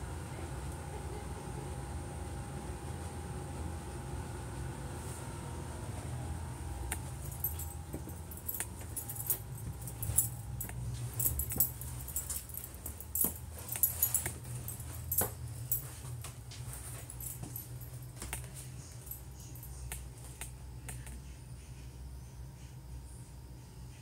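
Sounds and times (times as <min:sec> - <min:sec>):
steady low hum: 0:00.0 - 0:24.0
light jingling: 0:07.0 - 0:20.0.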